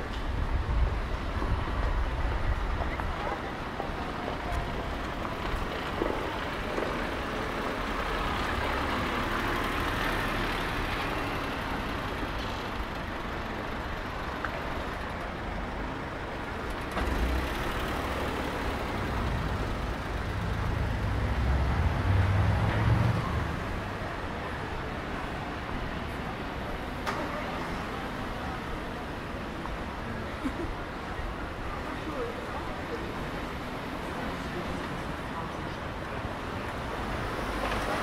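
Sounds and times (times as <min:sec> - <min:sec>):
heavy vehicle engine rumble: 0:00.0 - 0:38.0
hum of passing traffic: 0:00.0 - 0:38.0.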